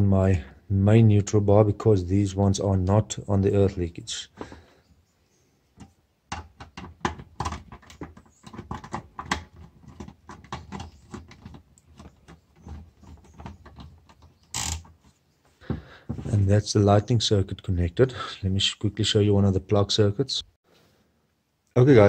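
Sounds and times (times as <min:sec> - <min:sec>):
screwdriver clicking and scratching: 0:05.8 - 0:15.0.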